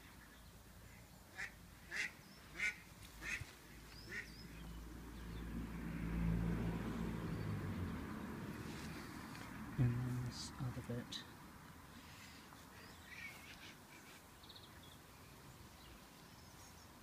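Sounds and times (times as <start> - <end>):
duck calling: 1.4 - 3.5, 4.1 - 4.3.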